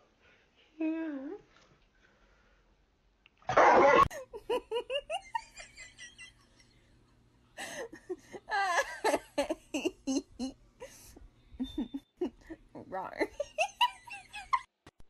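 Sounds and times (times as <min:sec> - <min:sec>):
person giggling: 0:04.0 - 0:06.6, 0:07.6 - 0:14.7.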